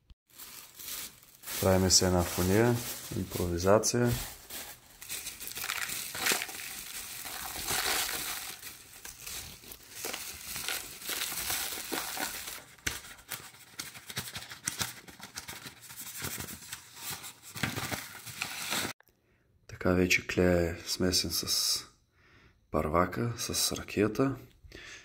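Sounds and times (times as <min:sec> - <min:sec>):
paper funnel crinkling: 0:00.3 - 0:19.0.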